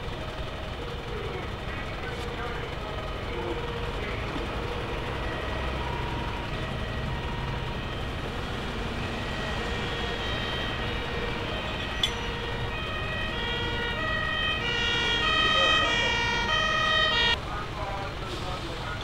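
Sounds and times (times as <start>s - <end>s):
idling vehicles rumbling: 0.0s - 19.0s
two-tone siren: 2.7s - 17.4s.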